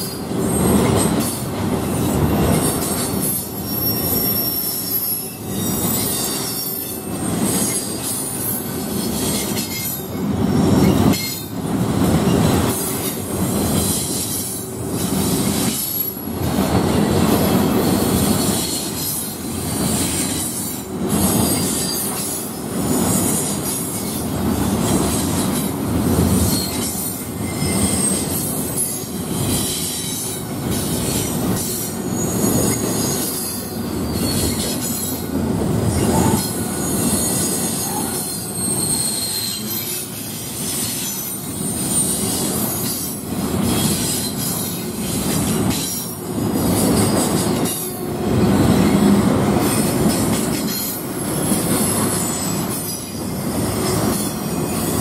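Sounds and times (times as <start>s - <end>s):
freight train wheels rumbling on rails: 0.0s - 55.0s
high wheel squeals: 2.6s - 11.5s, 26.4s - 44.8s.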